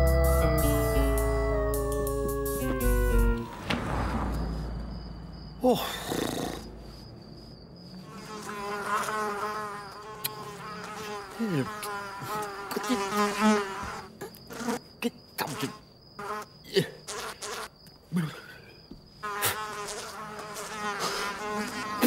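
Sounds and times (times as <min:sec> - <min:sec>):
cartoon housefly buzzing: 0:08.1 - 0:14.8, 0:19.2 - 0:22.0.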